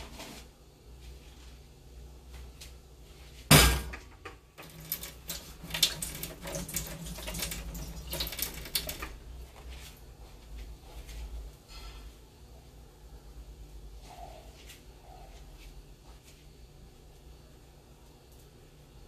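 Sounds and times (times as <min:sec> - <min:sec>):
sharp bang: 0:03.5 - 0:03.9.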